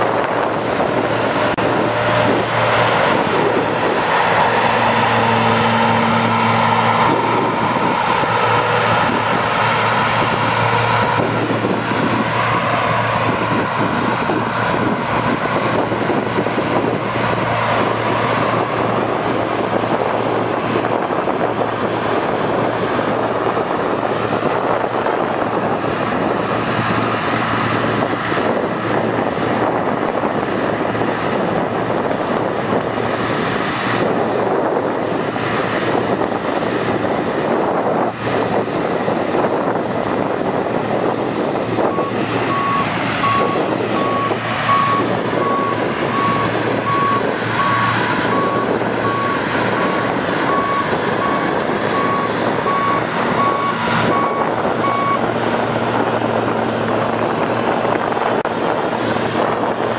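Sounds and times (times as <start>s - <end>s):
combine harvester engine drone: 0.0s - 59.9s
short electronic beeps: 42.0s - 49.3s.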